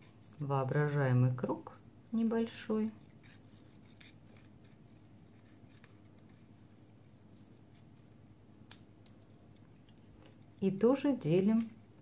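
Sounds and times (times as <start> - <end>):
scissors snipping paper: 3.0 - 10.4, 11.0 - 12.0.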